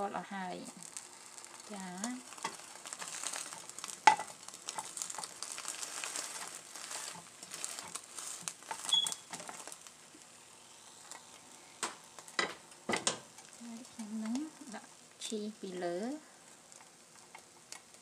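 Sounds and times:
omelet sizzling in frying pan: 0.0 - 18.0
spatula scraping pan: 2.3 - 9.7.

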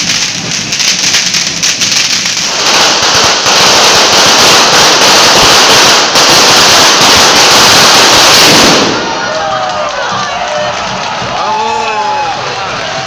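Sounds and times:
firecrackers crackling: 0.0 - 13.0.

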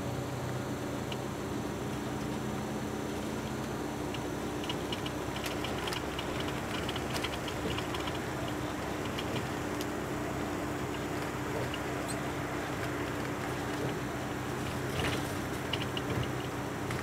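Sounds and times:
vehicle ride hum and rumble: 0.0 - 17.0
rapid light rattling: 4.1 - 17.0.

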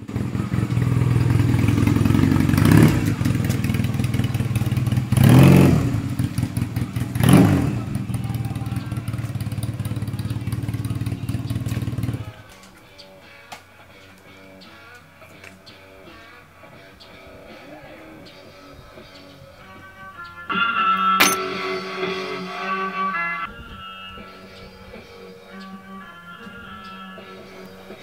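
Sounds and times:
motorcycle engine idling and revving: 0.0 - 12.4.

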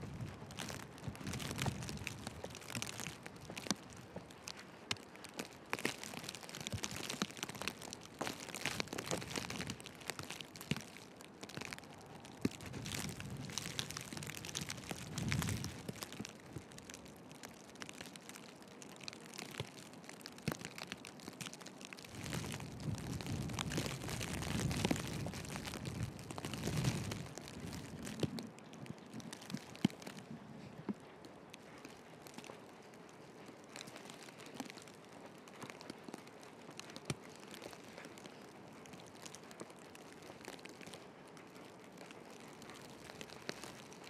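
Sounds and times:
footsteps crunching in snow: 0.0 - 18.4
wind rumbling on microphone: 0.0 - 18.4, 20.6 - 41.0.

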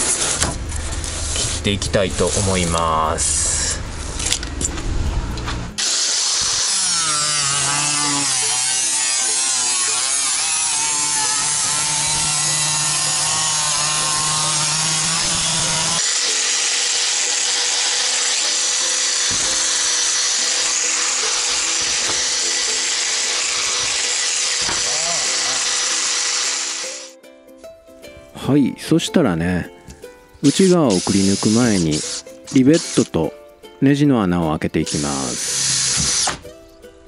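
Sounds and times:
power tool cutting steel sheet: 5.8 - 27.2, 30.4 - 33.2, 34.9 - 36.4.

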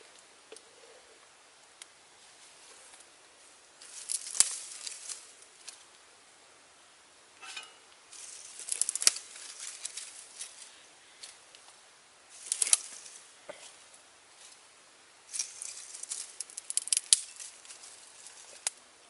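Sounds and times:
twigs and dead leaves crackling: 3.8 - 6.0, 7.4 - 14.7, 15.3 - 18.8.

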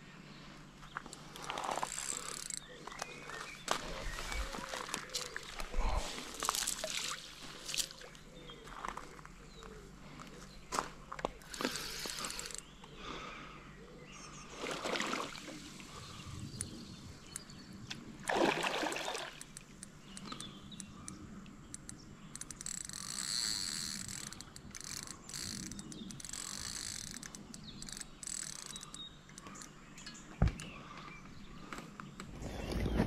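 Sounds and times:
fish thrashing and splashing: 18.2 - 19.6.

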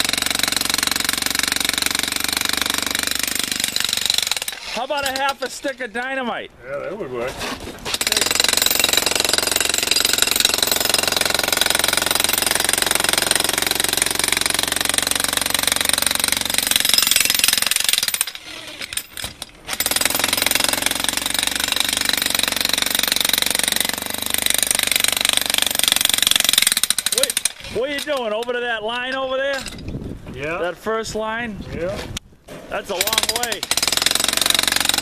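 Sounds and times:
demolition hammer chiselling concrete: 0.0 - 5.6, 7.9 - 28.1, 32.9 - 35.0.

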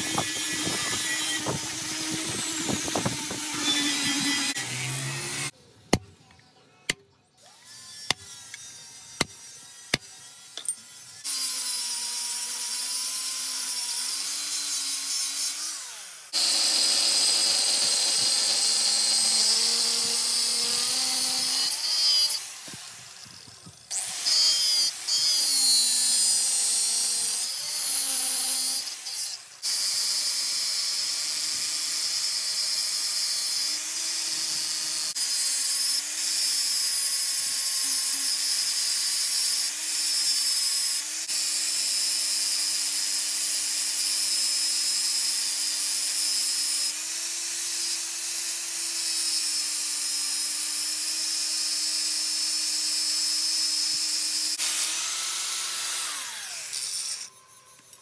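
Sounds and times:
angle grinder grinding steel: 0.0 - 5.6, 7.5 - 58.0.

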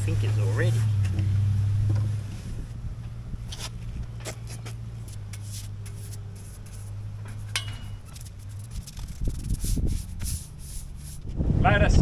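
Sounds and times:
low mechanical hum: 0.0 - 11.6.

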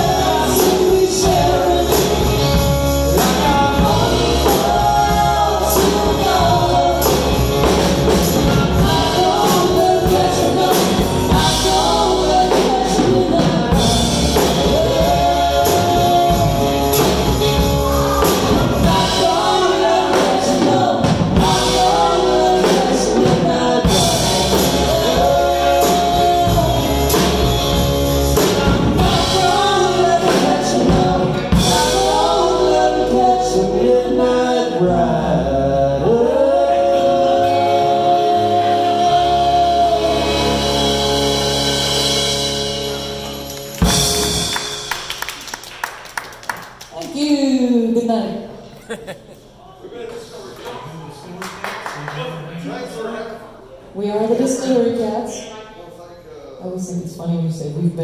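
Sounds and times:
person singing: 0.0 - 41.4
electric guitar: 0.0 - 45.4
drum kit: 0.0 - 45.7.

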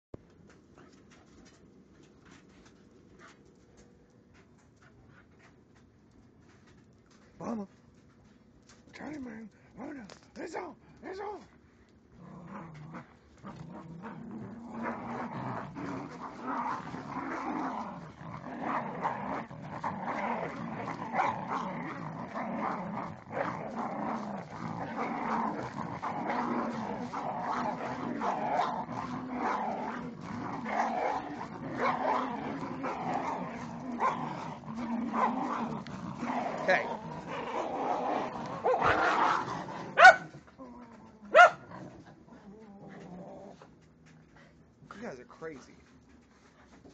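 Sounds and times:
small dogs growling: 9.2 - 44.6.

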